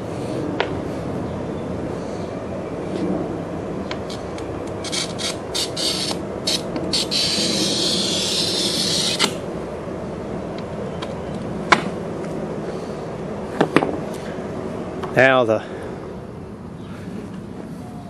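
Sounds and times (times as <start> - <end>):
blade scraping glass: 4.8 - 9.4.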